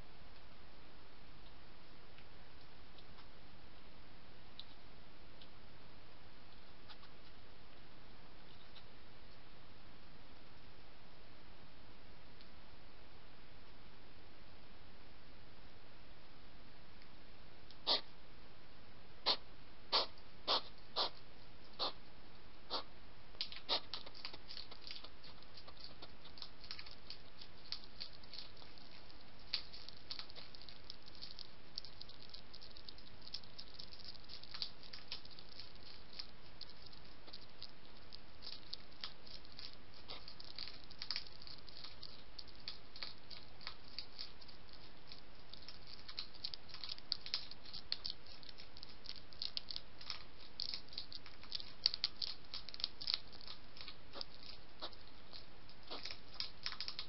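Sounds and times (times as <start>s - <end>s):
steady hiss: 0.0s - 57.0s
hedgehog crunching kibble: 19.3s - 21.2s, 21.8s - 22.0s, 22.7s - 57.0s.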